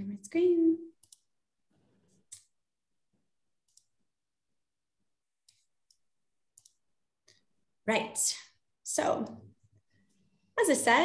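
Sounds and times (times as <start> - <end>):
computer mouse clicks: 1.0 - 1.3, 2.1 - 2.6, 3.6 - 4.0, 5.4 - 7.4.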